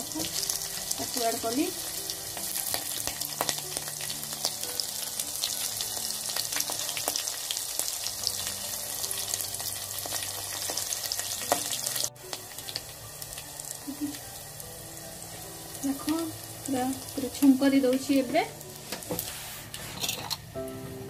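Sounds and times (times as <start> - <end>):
spices sizzling in hot oil: 0.0 - 21.0.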